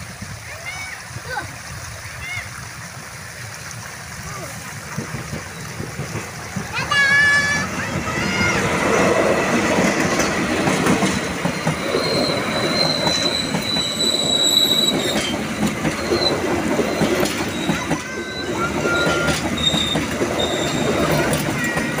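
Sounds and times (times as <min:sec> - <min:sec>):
train wheels clattering on rails: 0:04.8 - 0:22.0
high wheel squeal: 0:08.2 - 0:22.0.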